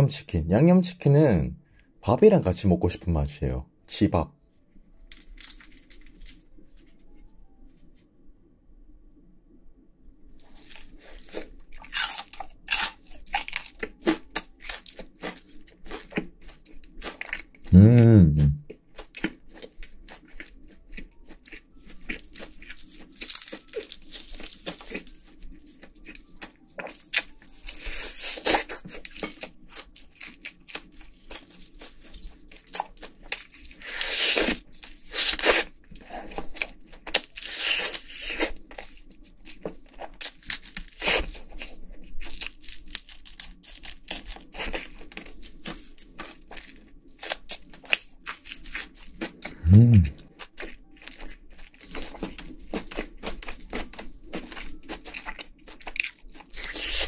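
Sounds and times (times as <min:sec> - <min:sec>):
meat being torn: 0:05.1 - 0:06.5, 0:10.6 - 0:17.5, 0:20.4 - 0:35.8, 0:36.5 - 0:49.4, 0:50.0 - 0:57.0
crunchy chewing: 0:10.4 - 0:57.0.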